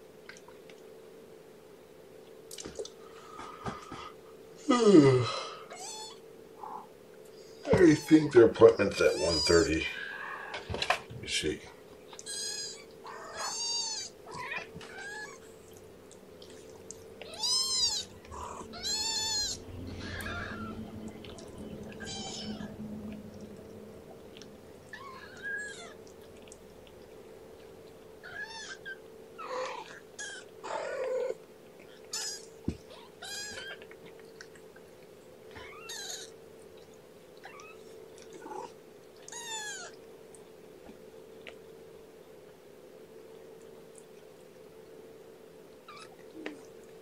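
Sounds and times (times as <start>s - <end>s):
faint hum: 0.0s - 47.0s
kittens mewing: 9.0s - 10.7s, 12.2s - 15.5s, 17.2s - 23.2s, 24.8s - 26.0s, 28.2s - 31.4s, 32.1s - 33.9s, 35.5s - 36.4s, 37.4s - 40.0s.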